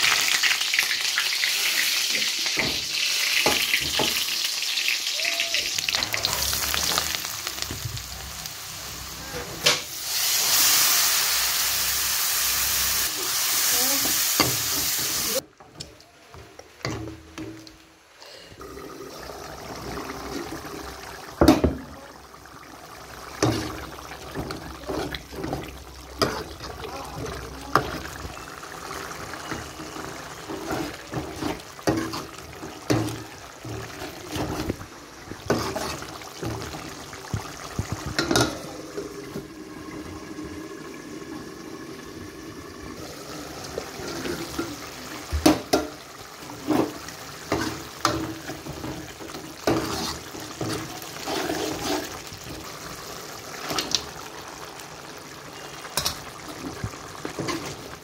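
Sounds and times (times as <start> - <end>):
ladle scraping steel pot: 35.5 - 36.9, 46.6 - 52.3
metal plate clanking on pot: 38.0 - 38.7.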